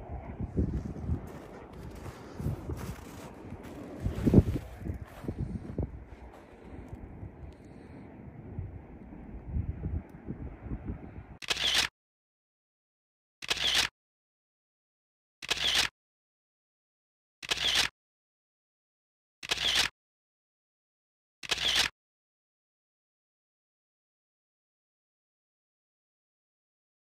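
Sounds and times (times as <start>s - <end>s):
wind on microphone: 0.0s - 11.4s
camera shutter clicking: 11.4s - 11.9s, 13.4s - 13.9s, 15.4s - 15.9s, 17.4s - 17.9s, 19.4s - 19.9s, 21.4s - 21.9s.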